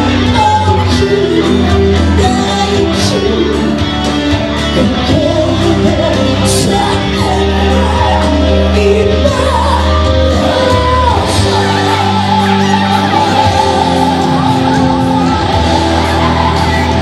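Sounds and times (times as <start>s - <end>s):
bass line: 0.0s - 17.0s
electric guitars: 0.0s - 17.0s
person singing: 0.0s - 17.0s.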